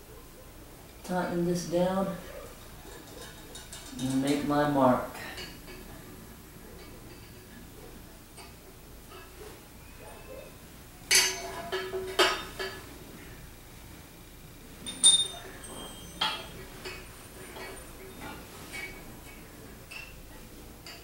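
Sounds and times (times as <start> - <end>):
metal tools clinking on tubing: 11.1 - 12.8, 14.8 - 20.2.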